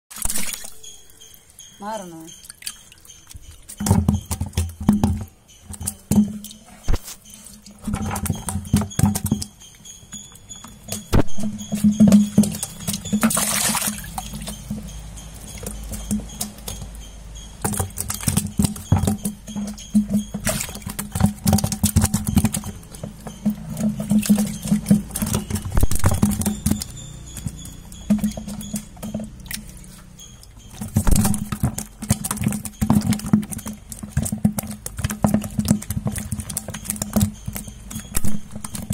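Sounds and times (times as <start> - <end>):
fish flapping in plastic bucket: 2.4 - 9.6, 10.6 - 17.0, 17.6 - 38.9.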